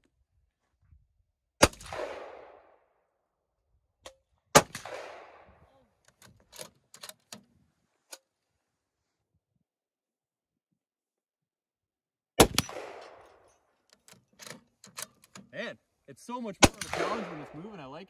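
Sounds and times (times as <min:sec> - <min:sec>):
rifle shots echoing: 0:01.6 - 0:02.8, 0:04.5 - 0:05.7, 0:12.4 - 0:13.5, 0:16.6 - 0:17.8.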